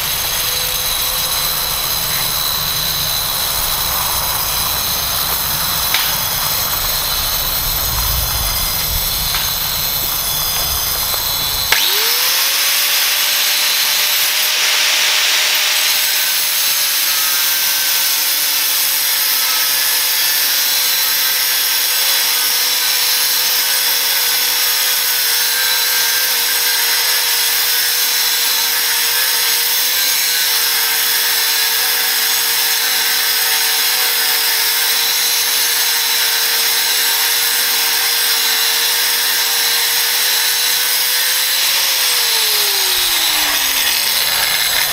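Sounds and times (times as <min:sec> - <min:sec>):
angle grinder cutting steel: 0:00.0 - 0:44.9
low rumble: 0:00.2 - 0:11.7.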